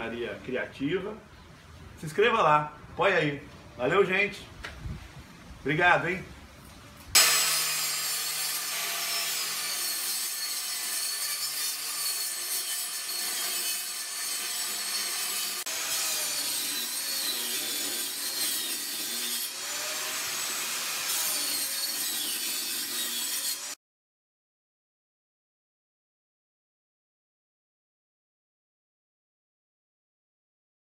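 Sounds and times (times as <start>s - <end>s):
high saw blade whine: 7.2s - 23.8s
table saw cutting wood: 7.2s - 23.8s.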